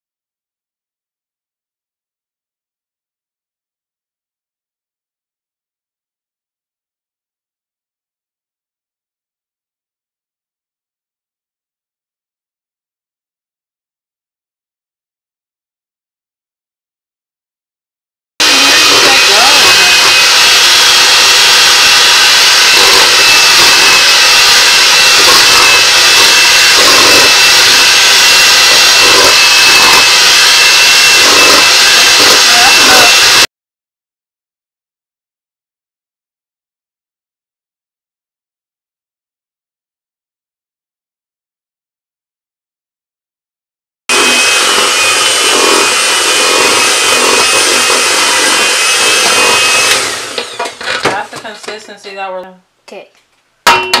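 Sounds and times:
electric hand mixer whining: 18.4s - 33.5s, 44.1s - 51.5s.

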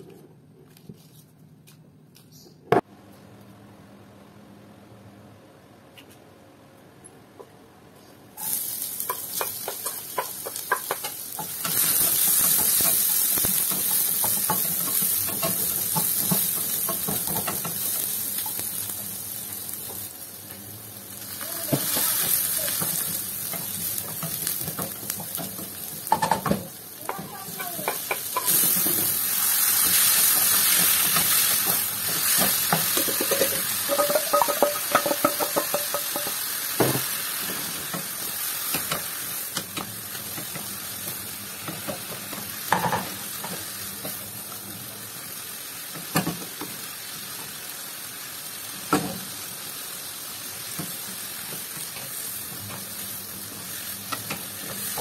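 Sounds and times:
shallots sizzling in oil: 8.4s - 55.0s.

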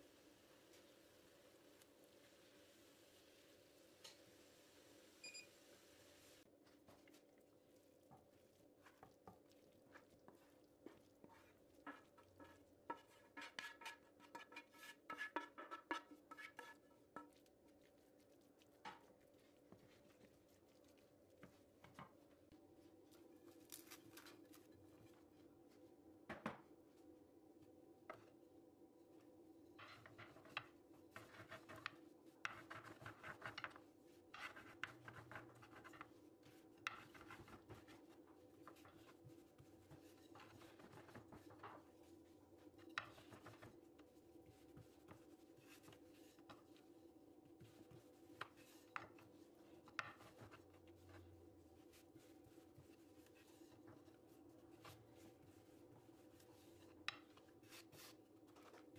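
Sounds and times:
wooden spoon stirring in bowl: 6.5s - 25.8s, 29.7s - 58.9s
rolling pin rolling dough: 6.8s - 22.3s, 29.8s - 58.9s.

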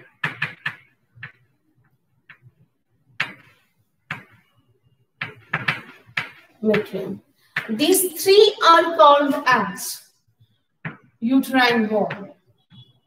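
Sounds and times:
chalk tapping on blackboard: 3.2s - 4.5s, 5.2s - 6.9s, 10.8s - 11.1s.

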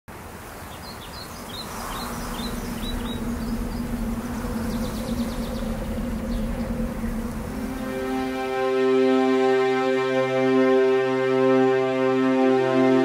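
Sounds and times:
small birds chirping: 0.4s - 8.5s
low sustained soundtrack tone: 1.5s - 13.0s.

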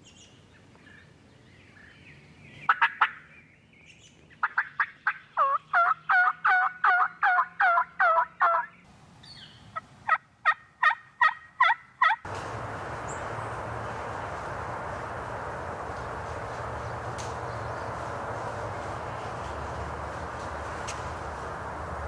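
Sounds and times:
turkey call yelps: 2.7s - 3.2s, 4.4s - 8.7s, 10.1s - 12.3s
steady hiss: 12.3s - 22.0s.

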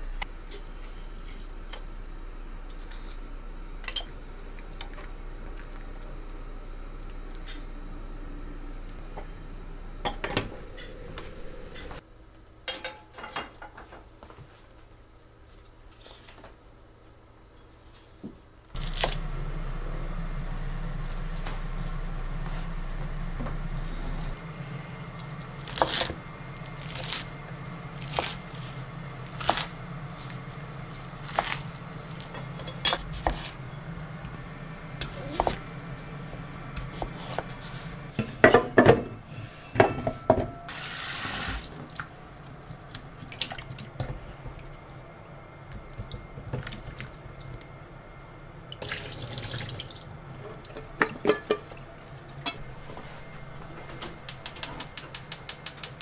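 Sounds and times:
steady low hum: 0.0s - 12.5s, 18.6s - 40.9s, 49.9s - 56.0s
tap water running: 40.7s - 45.0s, 48.8s - 52.5s.

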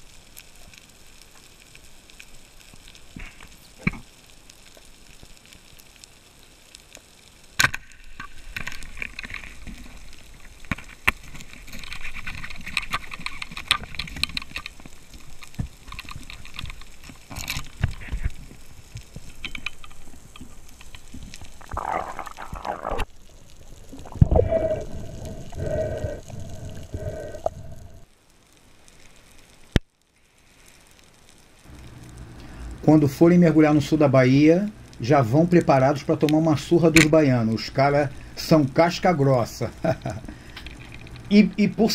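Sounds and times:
underwater crackling hiss: 0.0s - 41.9s
sharp clicks and knocks: 10.4s - 21.5s
low rumbling: 21.5s - 28.1s.

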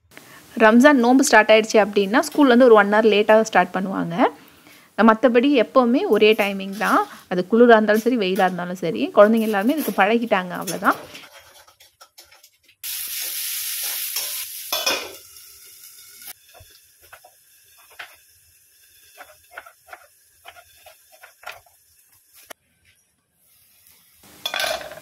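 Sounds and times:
shallots sizzling in hot oil: 0.2s - 22.6s, 23.4s - 25.0s
spatula stirring in a pan: 9.2s - 12.6s, 16.3s - 22.6s.

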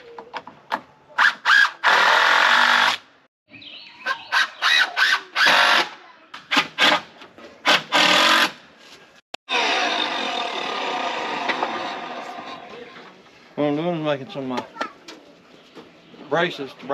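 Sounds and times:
power drill driving screws into wood: 1.2s - 3.0s, 4.7s - 8.6s, 9.5s - 12.1s.

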